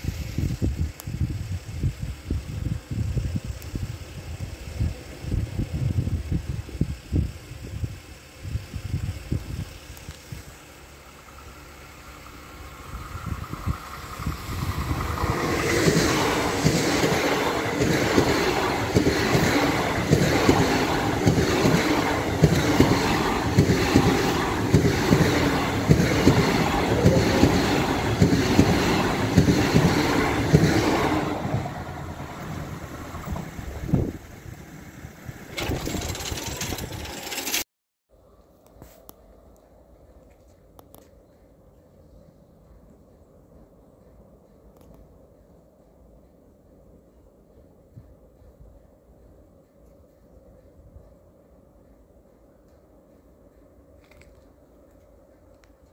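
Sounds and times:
electric train passing: 0.0s - 37.6s, 39.2s - 55.9s
wheels clattering on track: 10.8s - 37.6s.

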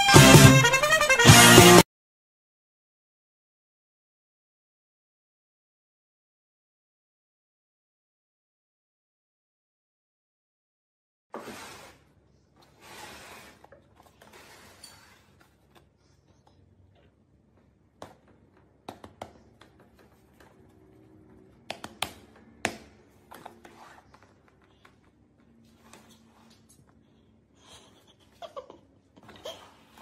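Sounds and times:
wooden drawer scraping open: 11.3s - 12.0s.

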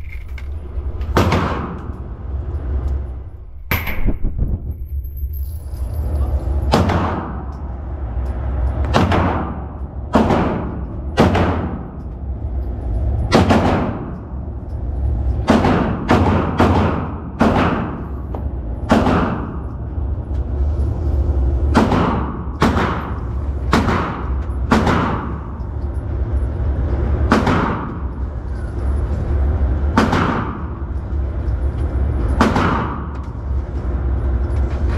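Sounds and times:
steady low rumble: 0.0s - 34.9s
gunshots with ringing tail: 8.9s - 12.0s, 15.4s - 18.1s, 18.8s - 19.6s, 21.7s - 25.5s.

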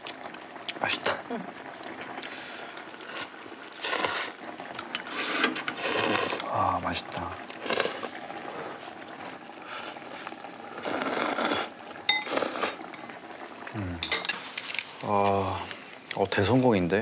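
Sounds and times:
people slurping noodles: 1.8s - 6.8s, 7.4s - 12.9s
metal utensil clinking bowl: 14.0s - 14.4s.

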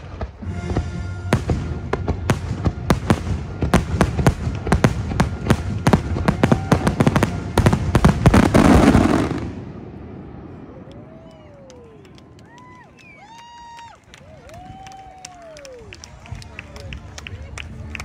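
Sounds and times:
fireworks bangs: 0.0s - 11.2s.

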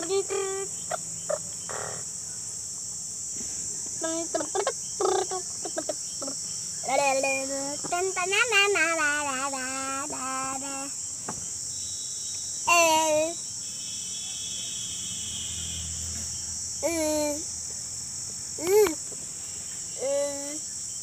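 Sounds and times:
boy singing wordless calls: 0.0s - 0.8s, 4.0s - 11.0s, 12.6s - 13.4s, 16.8s - 17.5s, 20.0s - 20.6s.

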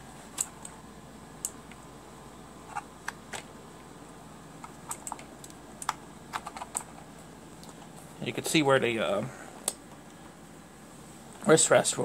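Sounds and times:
keyboard clicks and clacks: 4.6s - 7.0s.

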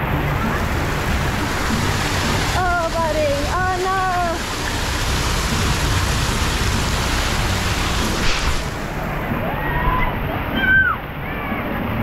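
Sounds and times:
water spraying and splashing: 0.0s - 9.5s.

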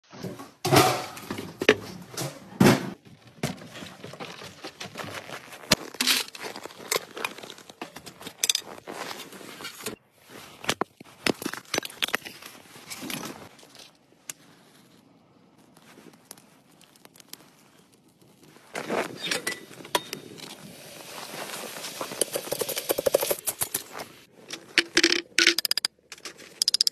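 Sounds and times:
knocks and clinks of handled objects: 24.5s - 26.9s.

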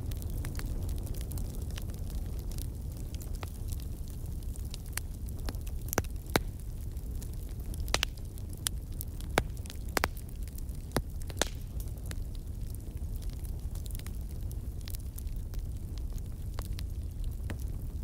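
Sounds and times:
fire crackling: 0.0s - 18.0s
sharp pops of fire: 7.6s - 18.0s.

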